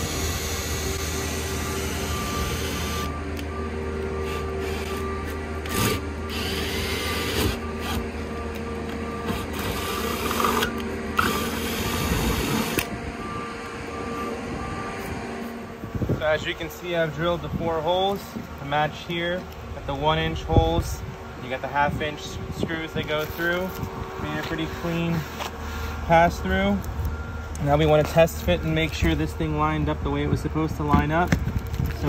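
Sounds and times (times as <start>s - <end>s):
cordless drill whine: 0.0s - 15.6s.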